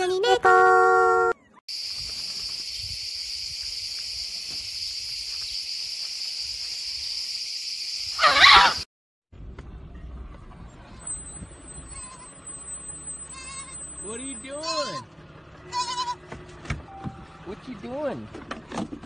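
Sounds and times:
insects buzzing: 1.7s - 8.8s
wavering animal cry: 8.2s - 8.8s, 14.5s - 16.2s.

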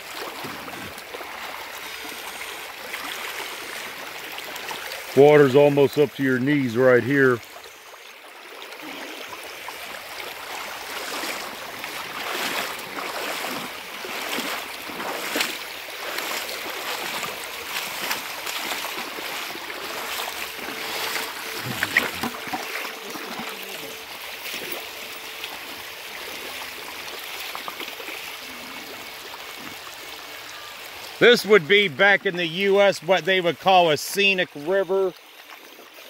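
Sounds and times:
river current rushing: 0.0s - 34.8s
wading footsteps splashing water: 0.0s - 36.0s.

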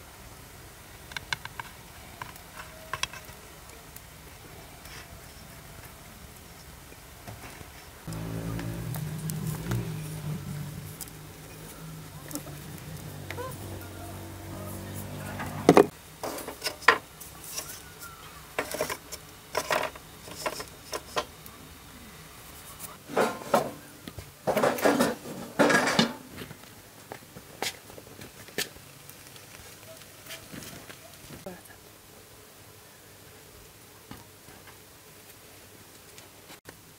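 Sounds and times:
low hum: 8.1s - 15.9s.

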